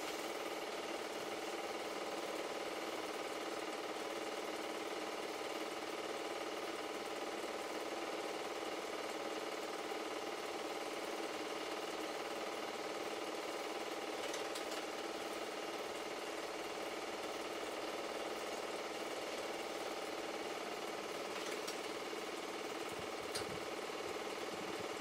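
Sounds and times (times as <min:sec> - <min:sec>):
film projector whirring: 0:00.0 - 0:25.0.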